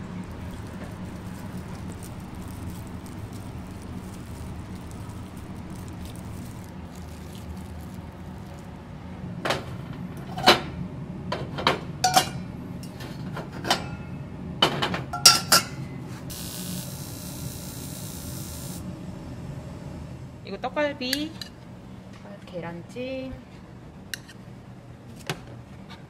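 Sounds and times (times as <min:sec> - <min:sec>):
steady low hum: 0:00.0 - 0:25.1
metal lids clinking on pots: 0:12.0 - 0:13.0, 0:15.2 - 0:15.8.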